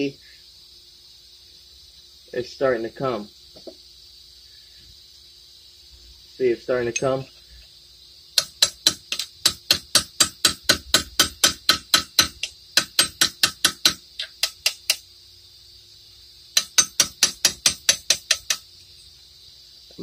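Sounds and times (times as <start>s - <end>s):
hammer tapping steel punch: 8.4s - 15.0s, 16.6s - 18.7s.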